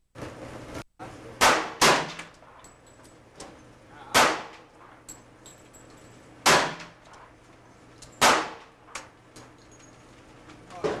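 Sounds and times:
handgun shots ringing: 1.4s - 2.7s, 4.1s - 5.0s, 6.4s - 7.3s, 8.1s - 9.1s.

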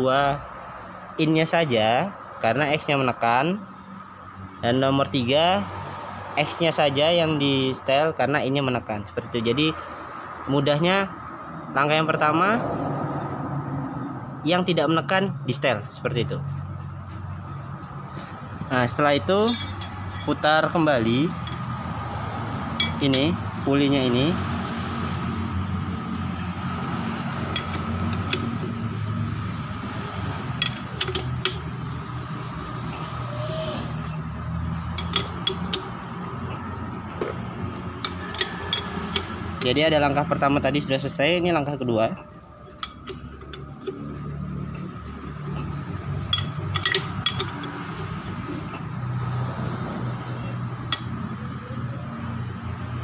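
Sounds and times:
metallic spanner clinks: 19.4s - 20.8s, 21.4s - 21.7s, 22.8s - 23.4s, 27.5s - 28.6s, 30.6s - 31.6s, 34.9s - 35.9s, 38.0s - 39.7s, 46.3s - 47.8s.

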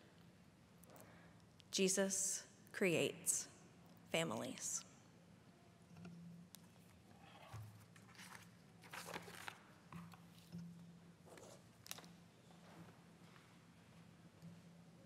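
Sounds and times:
papers rustling: 7.8s - 10.2s.

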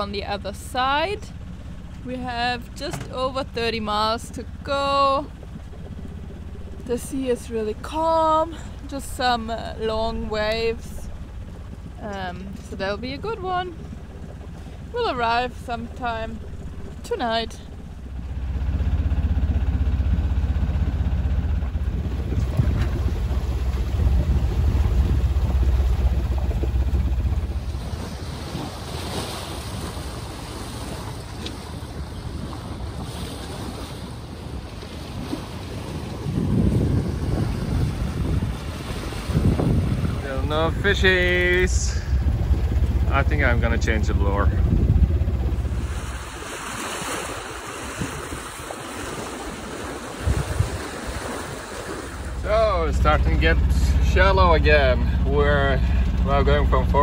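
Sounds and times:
heavy low rumble: 0.0s - 33.1s, 35.7s - 48.7s, 50.2s - 57.0s
water washing along hull: 0.0s - 57.0s
wind on microphone: 21.2s - 57.0s.

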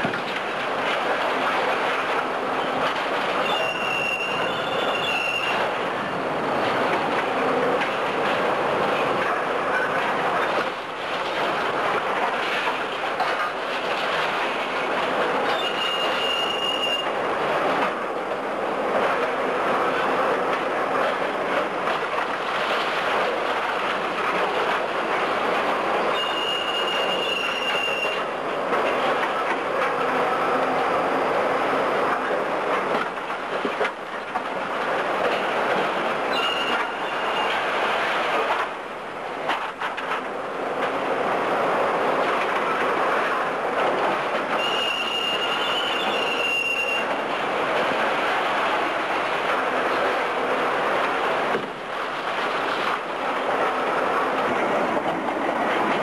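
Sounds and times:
machinery clatter: 0.0s - 30.8s, 32.0s - 56.0s
brief high squeal: 3.4s - 5.6s, 15.5s - 17.1s, 26.2s - 28.2s, 36.3s - 37.5s, 44.6s - 47.1s
high squeal: 3.4s - 5.6s.

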